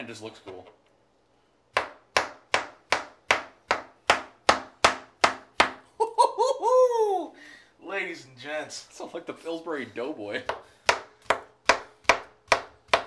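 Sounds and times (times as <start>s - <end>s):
knife chopping on cutting board: 1.7s - 5.8s, 10.4s - 13.0s
person speaking: 6.0s - 10.6s.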